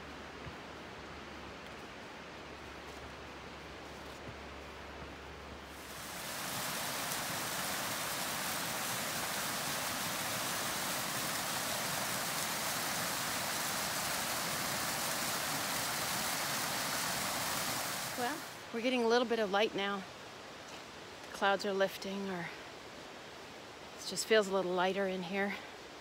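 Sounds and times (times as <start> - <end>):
rushing creek water: 4.4 - 26.0.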